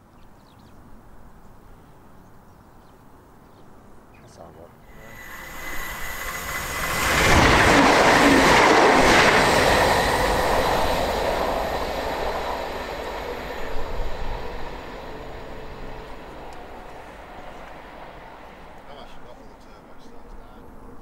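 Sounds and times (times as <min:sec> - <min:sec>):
diesel train passing at speed: 0:04.8 - 0:21.0.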